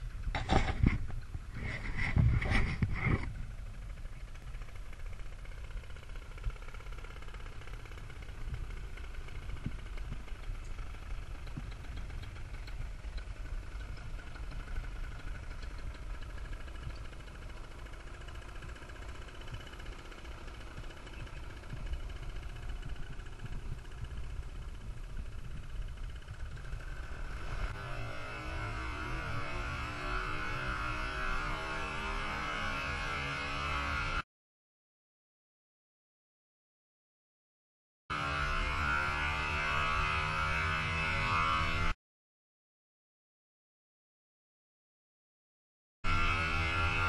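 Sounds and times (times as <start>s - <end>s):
wind buffeting microphone: 21.2s - 26.8s.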